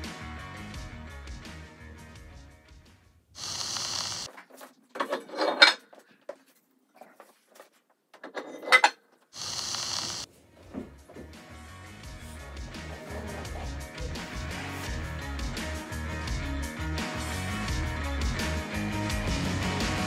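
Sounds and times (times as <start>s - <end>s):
static hiss bursts: 3.4s - 4.3s, 9.4s - 10.3s.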